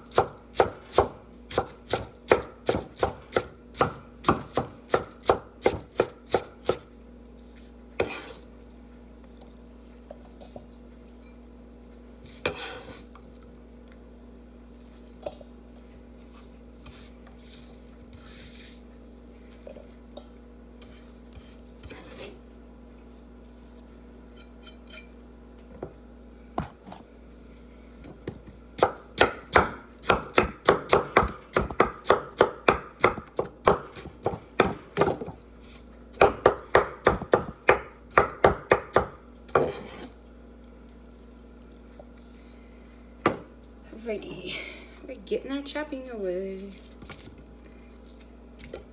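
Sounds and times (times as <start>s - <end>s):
knife chopping on wooden board: 0.1s - 6.9s, 8.0s - 8.4s, 28.8s - 35.4s, 36.2s - 40.0s.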